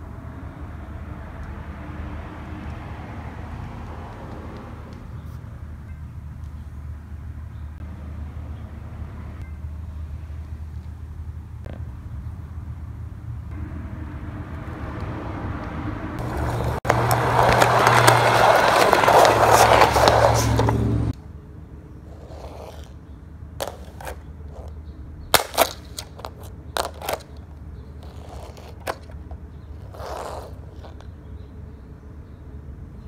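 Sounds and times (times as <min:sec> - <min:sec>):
plastic toys clicking on floor: 0:25.4 - 0:27.4, 0:28.0 - 0:31.1.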